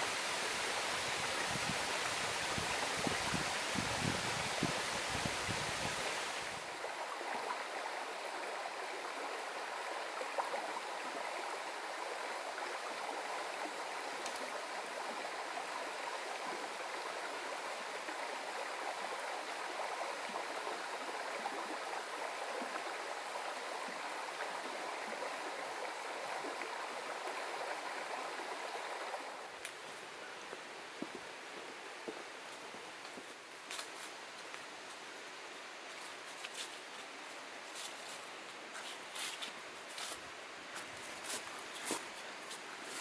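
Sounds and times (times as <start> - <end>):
creek water running over stones: 0.0 - 43.0.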